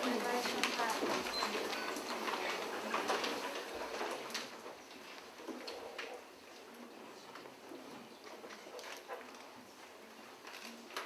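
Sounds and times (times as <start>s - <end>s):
paper rustling: 0.0s - 6.2s, 8.3s - 11.0s.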